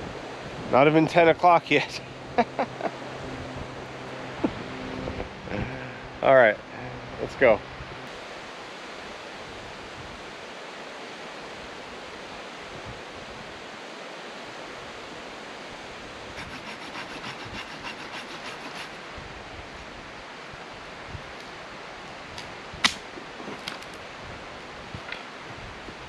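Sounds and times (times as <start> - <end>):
steady rushing outdoor noise: 0.0 - 26.0.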